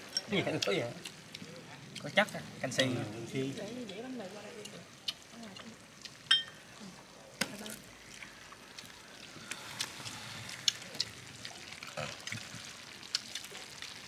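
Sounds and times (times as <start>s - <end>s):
tableware clinking: 6.3s - 6.6s.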